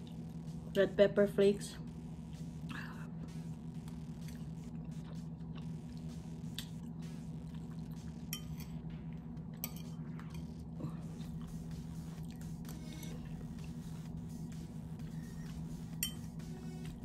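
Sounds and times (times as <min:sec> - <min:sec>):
steady low hum: 0:00.0 - 0:17.0
person chewing and slurping: 0:02.6 - 0:08.8, 0:09.9 - 0:16.4
fork clinking against bowl: 0:08.3 - 0:08.8, 0:09.6 - 0:10.5, 0:16.0 - 0:16.3.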